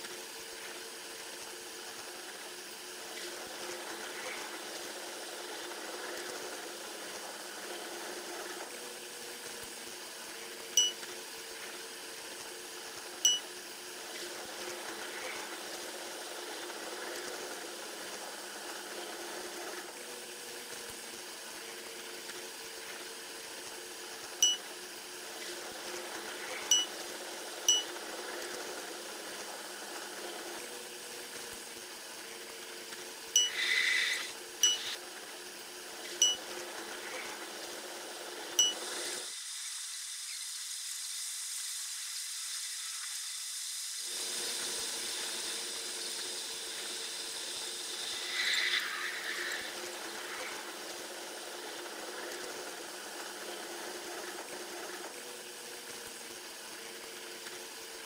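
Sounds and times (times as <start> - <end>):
brief high tone: 33.4 - 33.8
short sharp high chirps: 33.4 - 35.0.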